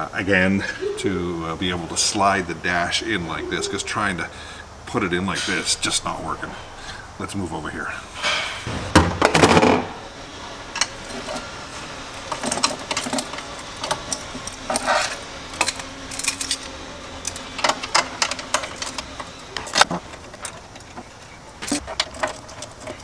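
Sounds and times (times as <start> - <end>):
loud clatter: 8.2 - 10.1
hand tools clicking on metal: 10.7 - 23.0.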